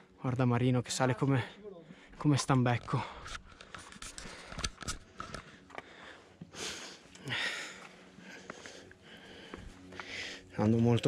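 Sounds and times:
small clicks and scuffs: 2.6 - 6.0
person breathing hard: 3.2 - 10.5.

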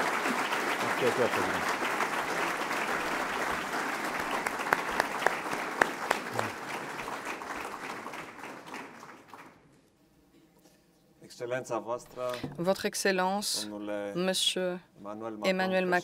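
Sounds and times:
audience applause: 0.0 - 9.6.

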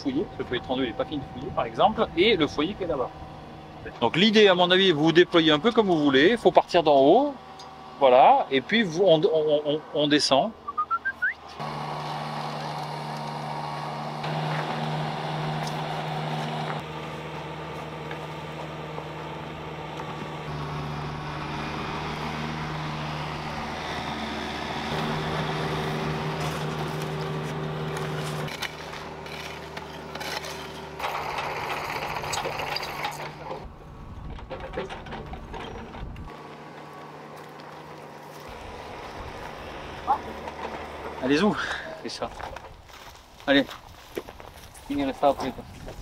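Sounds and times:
diesel engine running: 0.0 - 43.4
clicks and scrapes: 26.4 - 33.6.

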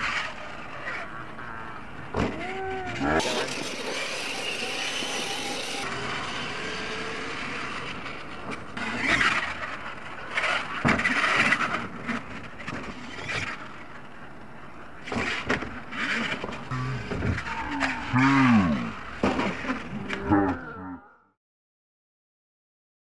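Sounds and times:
toy truck motor on dirt: 3.0 - 13.7.

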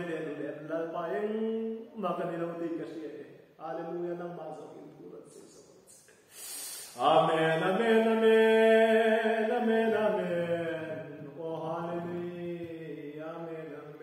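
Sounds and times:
man singing long notes: 6.9 - 14.0.

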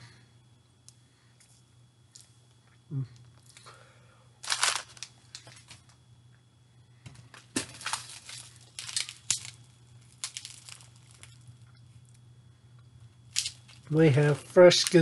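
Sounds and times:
plastic wrapper crinkling: 4.4 - 5.8, 7.3 - 12.2, 13.3 - 15.0.

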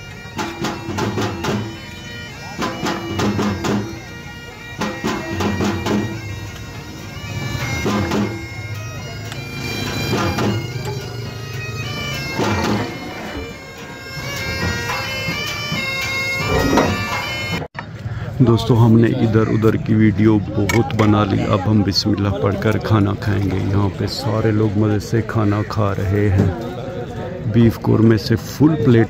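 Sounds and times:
bagpipe melody over drone: 0.0 - 17.7.

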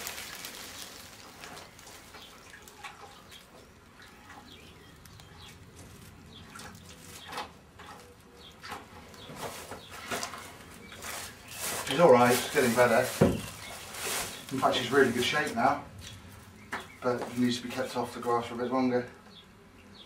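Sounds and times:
pony shifting on straw: 0.0 - 4.2, 9.1 - 17.8
plastic tub knocks: 13.1 - 13.5.

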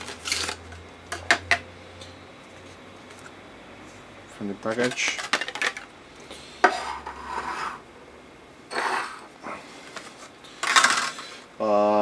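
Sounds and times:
plastic rustling and scraping: 0.0 - 0.8, 4.6 - 5.9.

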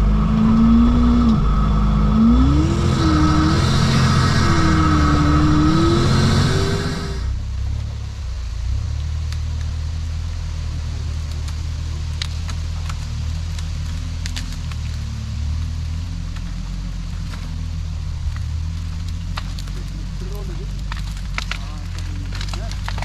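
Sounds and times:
tracked vehicle engine rumble: 0.0 - 23.0
light clicks and crackles: 8.8 - 23.0.

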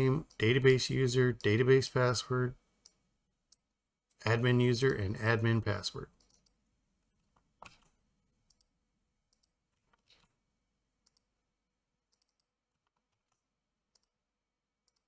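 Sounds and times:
computer mouse clicks: 6.2 - 6.6, 7.6 - 8.7, 9.3 - 10.3, 11.0 - 11.3, 12.1 - 14.2.

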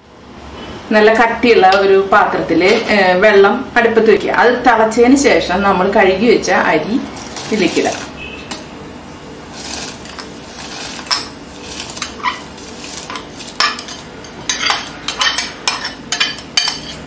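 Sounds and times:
rice clinking against metal pot: 9.6 - 17.0.

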